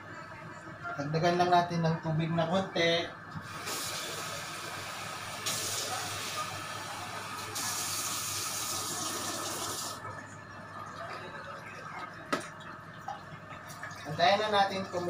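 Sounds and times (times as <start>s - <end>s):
tap water running into container: 7.6s - 10.0s, 10.8s - 15.0s.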